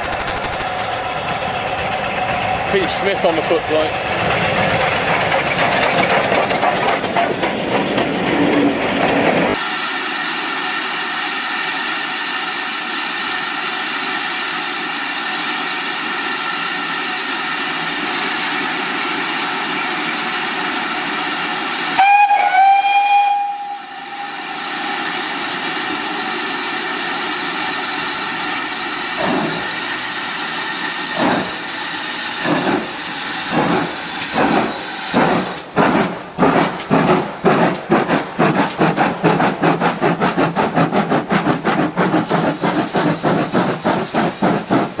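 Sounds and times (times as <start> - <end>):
steam locomotive exhaust chuffing: 0.0 - 8.3, 9.0 - 45.0
steam hissing: 9.5 - 45.0
steam locomotive whistle blast: 22.0 - 25.1.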